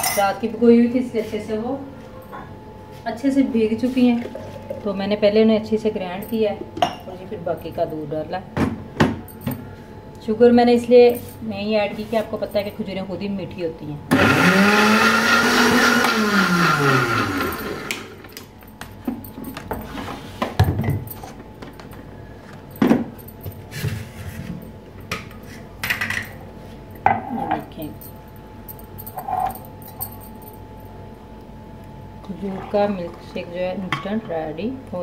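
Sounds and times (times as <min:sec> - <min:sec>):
blender motor whining: 0:14.1 - 0:18.3.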